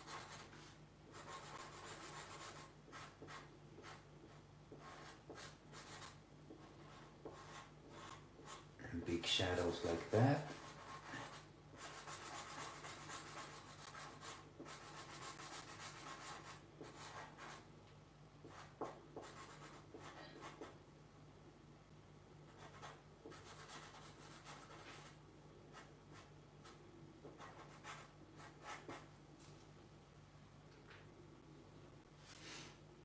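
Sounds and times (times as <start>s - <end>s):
marker scratching on paper: 0.0s - 8.7s, 10.0s - 17.6s, 18.4s - 20.8s, 22.5s - 29.1s
low steady hum: 0.0s - 33.0s.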